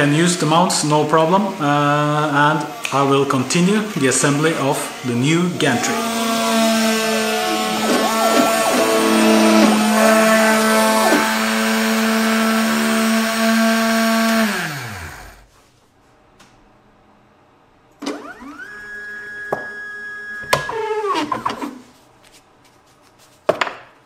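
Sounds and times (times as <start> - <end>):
spindle motor whine: 0.0 - 15.5, 18.0 - 21.8
stepper motor tones sweeping: 0.3 - 15.5.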